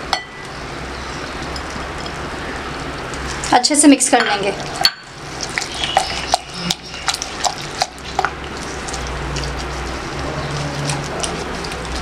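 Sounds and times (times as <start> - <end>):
wet mixing sounds: 0.0 - 12.0.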